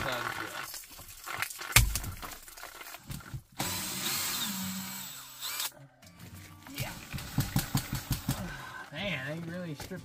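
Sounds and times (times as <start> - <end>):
cordless drill driving screw: 3.6 - 5.7.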